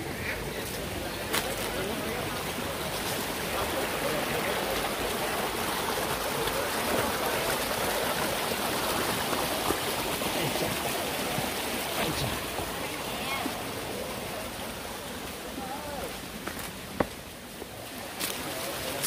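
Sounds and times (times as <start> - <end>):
mountain stream running: 0.0 - 19.0
faint talk: 11.9 - 16.3.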